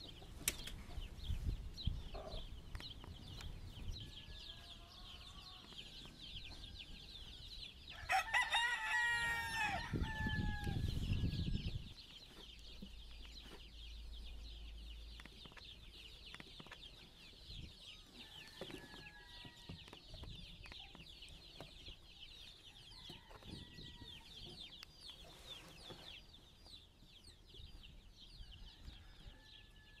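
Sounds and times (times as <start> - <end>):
rooster crowing: 7.9 - 11.0.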